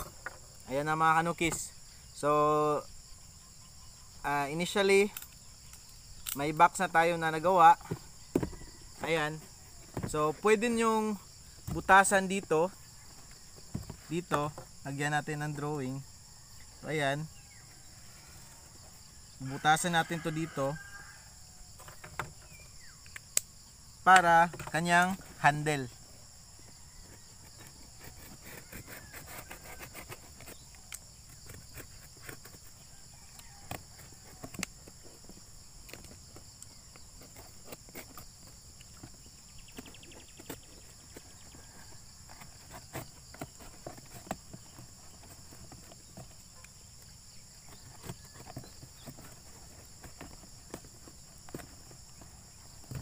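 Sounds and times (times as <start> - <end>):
utility knife cutting cardboard: 27.4 - 32.8.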